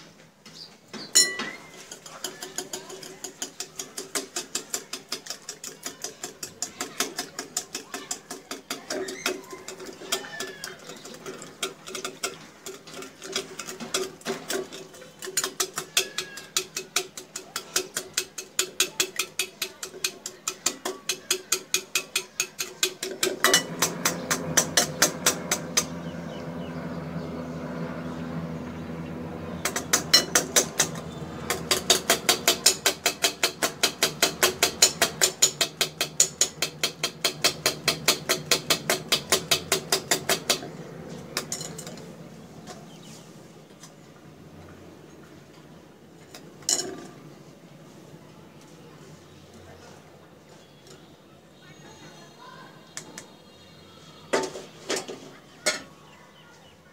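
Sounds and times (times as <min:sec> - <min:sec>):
whisk clicking against bowl: 0:01.7 - 0:26.0, 0:29.6 - 0:40.7.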